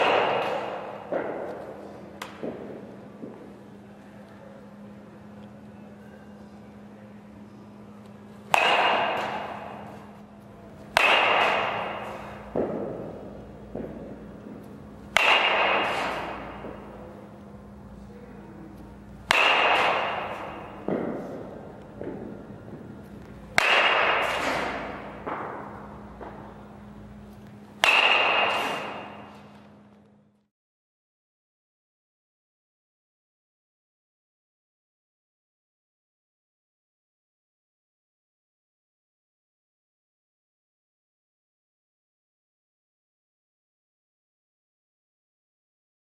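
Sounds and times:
metal bat striking ball: 0:00.0 - 0:03.4, 0:08.5 - 0:10.2, 0:10.9 - 0:17.2, 0:19.2 - 0:27.0, 0:27.8 - 0:29.5
steady low hum: 0:00.0 - 0:30.5.

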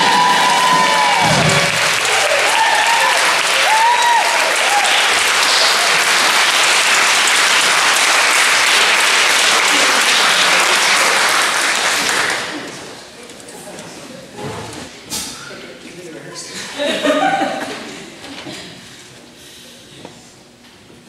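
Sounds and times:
whoops: 0:00.0 - 0:05.1
audience applauding: 0:00.0 - 0:12.9.

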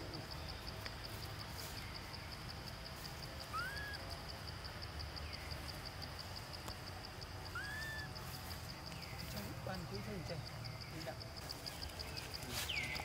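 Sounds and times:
insects chirping: 0:00.0 - 0:13.0
faint falling chirps: 0:03.3 - 0:04.0, 0:07.5 - 0:09.4
whistled bird call: 0:03.5 - 0:04.0, 0:07.5 - 0:08.1.

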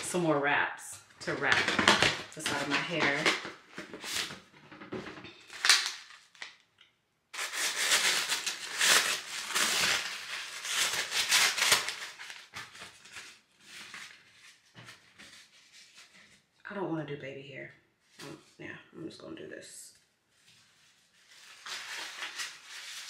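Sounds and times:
packaging rustling and crinkling: 0:01.2 - 0:06.7, 0:07.4 - 0:16.4, 0:20.4 - 0:23.0.

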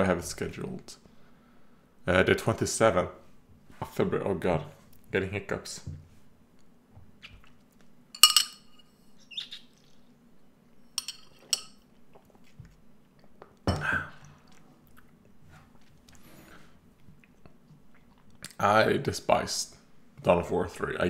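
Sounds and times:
drinking glass clinking: 0:08.2 - 0:08.8, 0:11.0 - 0:11.8.

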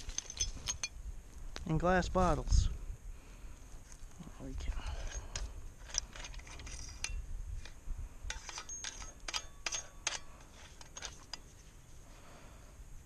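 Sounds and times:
shovel clinking against glass: 0:00.0 - 0:01.0, 0:08.3 - 0:11.4.

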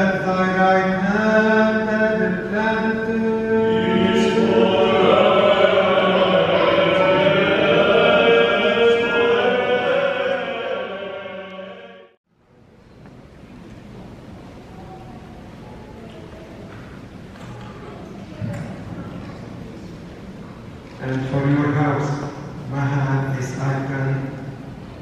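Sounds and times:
choir chanting long held notes: 0:01.7 - 0:12.2.

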